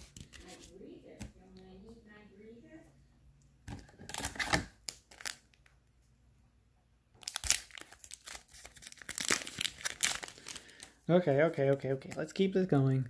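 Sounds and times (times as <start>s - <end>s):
foil wrapper crinkling: 4.1s - 5.7s, 7.2s - 12.5s.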